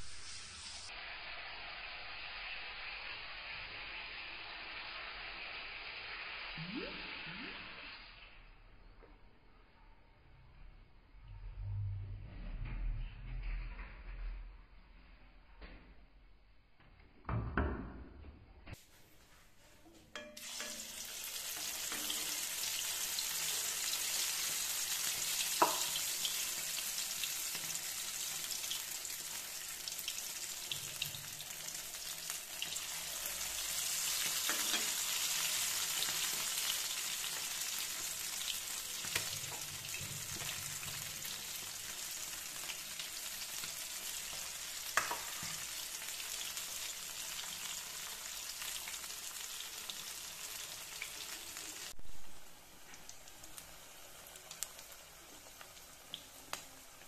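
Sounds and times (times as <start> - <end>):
deep-frying in hot oil sizzle: 0.0 - 8.6, 20.2 - 57.0.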